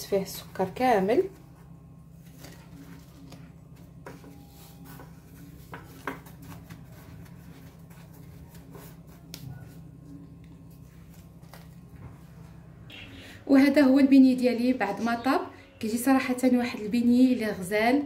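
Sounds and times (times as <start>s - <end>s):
steady low hum: 0.0s - 18.0s
sugar scraping and rustling: 1.2s - 11.9s.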